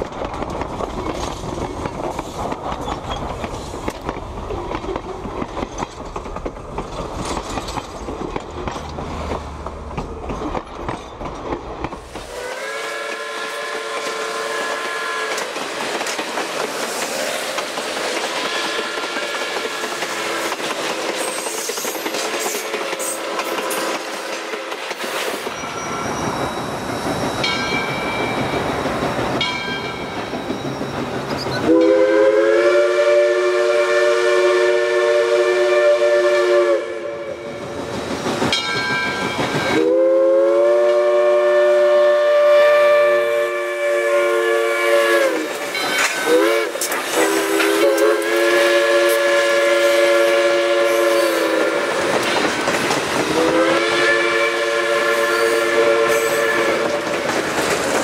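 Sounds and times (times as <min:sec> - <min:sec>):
train rolling noise: 0:00.0 - 0:58.0
locomotive horn blasts: 0:12.3 - 0:15.5, 0:18.4 - 0:20.5, 0:31.6 - 0:37.5, 0:39.8 - 0:45.5, 0:46.3 - 0:51.9, 0:53.3 - 0:57.1.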